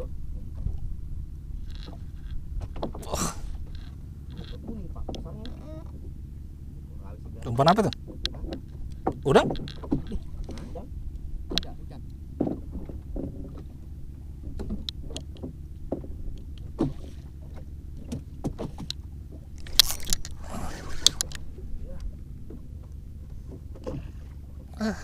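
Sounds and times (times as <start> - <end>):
low steady rumble: 0.0 - 25.0
paddle knocking on wooden hull: 7.3 - 19.5.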